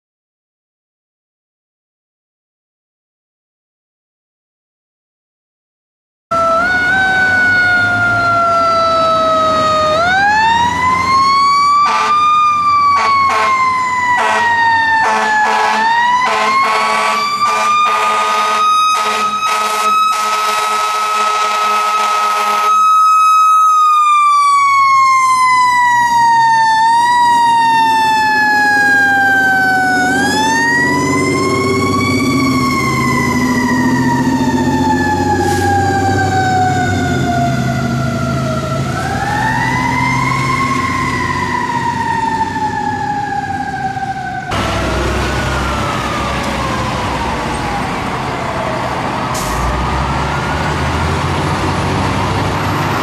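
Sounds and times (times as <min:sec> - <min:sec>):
fire truck siren winding: 0:06.3 - 0:51.4
truck engine: 0:06.4 - 0:53.0
air horn blasts: 0:11.8 - 0:12.2, 0:13.0 - 0:13.6, 0:14.2 - 0:22.8.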